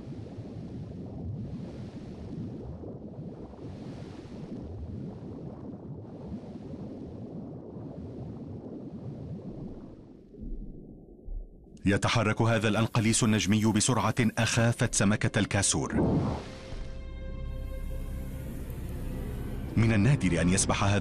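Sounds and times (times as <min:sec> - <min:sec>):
underwater watery rumble: 0:00.0 - 0:11.8, 0:15.9 - 0:19.8
underwater hiss: 0:16.3 - 0:19.7.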